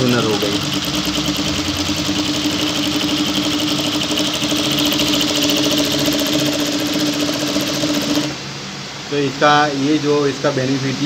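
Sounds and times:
sewing machine running: 0:00.0 - 0:08.4.

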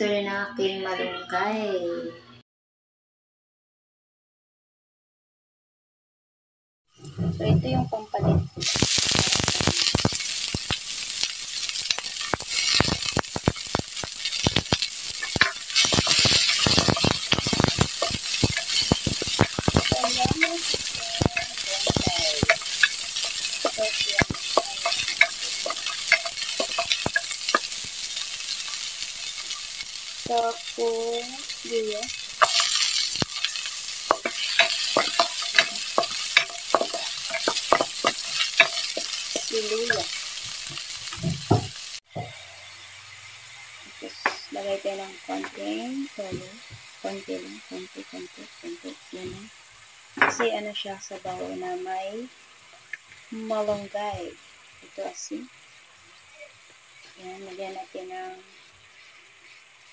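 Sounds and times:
garlic sizzling in hot oil: 0:07.0 - 0:59.9
wooden spatula scraping wok: 0:11.5 - 0:30.0, 0:30.7 - 0:42.6.

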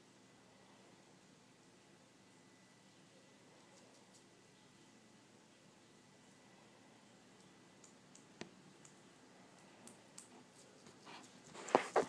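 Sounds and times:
small animal chewing clicks: 0:03.7 - 0:04.3, 0:07.4 - 0:11.6.

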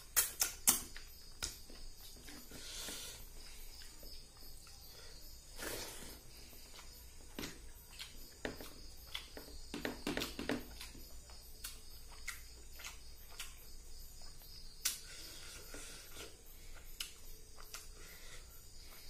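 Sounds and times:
fingers squishing wet food: 0:06.6 - 0:15.1.

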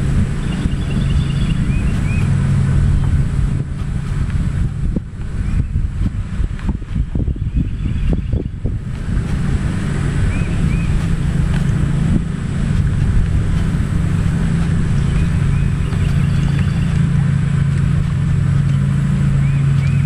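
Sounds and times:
boat motor humming: 0:00.0 - 0:20.0
wind rumble on microphone: 0:00.0 - 0:20.0.

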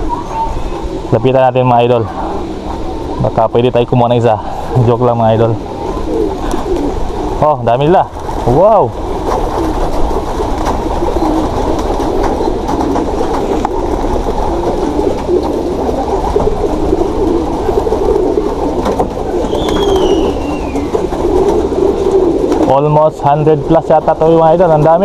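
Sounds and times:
flock of doves cooing: 0:00.0 - 0:25.0
high falling chirp: 0:19.4 - 0:21.0.

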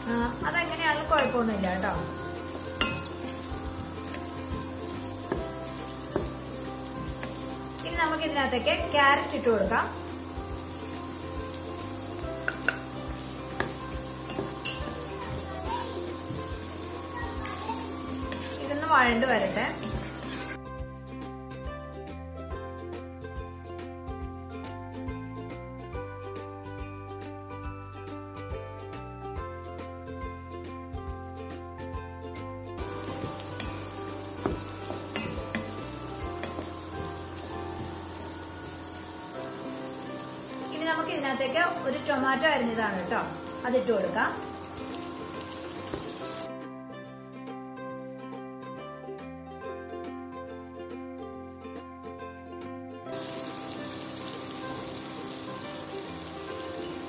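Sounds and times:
vegetables sizzling in a pan: 0:00.0 - 0:21.3, 0:32.8 - 0:46.5, 0:53.1 - 0:57.0
background music: 0:00.0 - 0:57.0
spatula knocking on pan: 0:02.8 - 0:07.4, 0:12.4 - 0:15.5, 0:33.0 - 0:38.8
wooden spatula stirring: 0:17.8 - 0:20.6.

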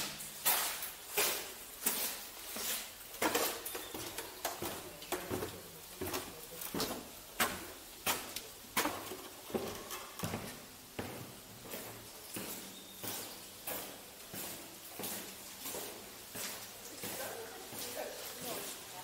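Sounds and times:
footsteps walking: 0:00.0 - 0:19.0.

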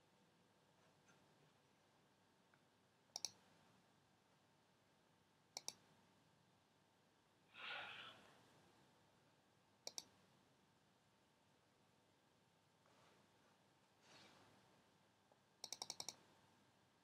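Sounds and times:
short breath-like hiss: 0:07.5 - 0:08.2
computer mouse double clicks: 0:09.8 - 0:10.1, 0:15.6 - 0:16.2.

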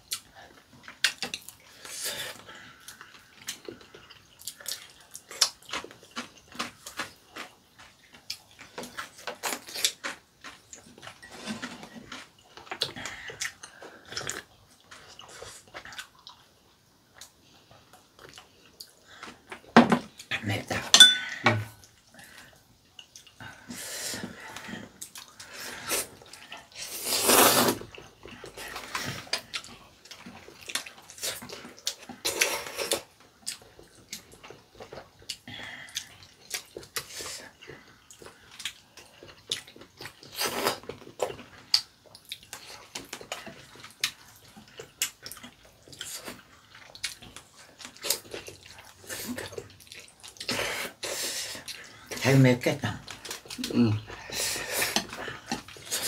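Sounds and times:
chewing: 0:00.0 - 0:20.4, 0:21.7 - 0:52.2, 0:52.9 - 0:56.0
noodle slurping: 0:25.2 - 0:29.3.

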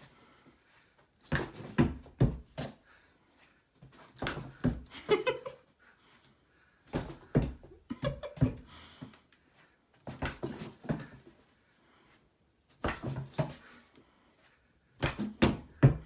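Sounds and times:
ball thudding on carpeted stairs: 0:01.2 - 0:02.8, 0:03.8 - 0:05.3, 0:06.9 - 0:09.1, 0:10.0 - 0:11.3, 0:12.7 - 0:13.7, 0:15.0 - 0:16.0.

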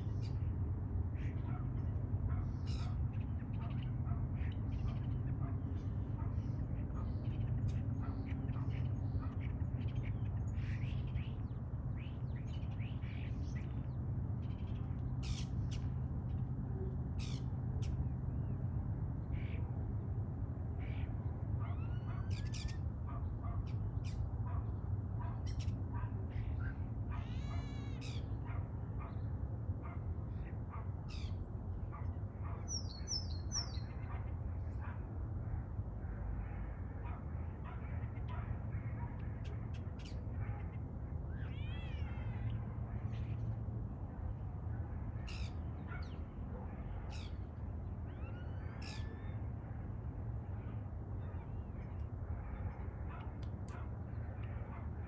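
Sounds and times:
starlings singing: 0:32.6 - 0:34.1.

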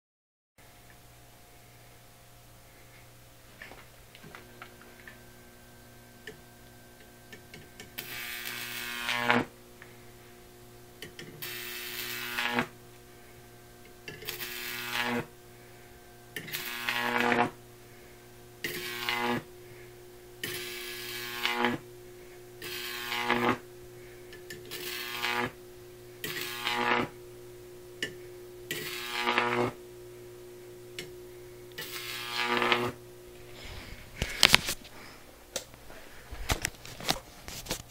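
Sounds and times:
buzzing high-voltage arc: 0:07.5 - 0:09.6, 0:11.1 - 0:12.9, 0:14.0 - 0:17.7, 0:18.5 - 0:23.8, 0:24.5 - 0:30.2, 0:30.8 - 0:33.4.

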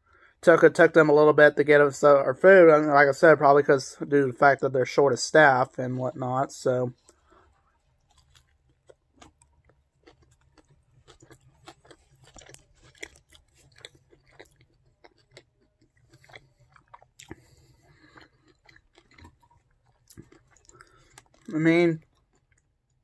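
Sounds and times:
person chewing food: 0:06.9 - 0:23.0.

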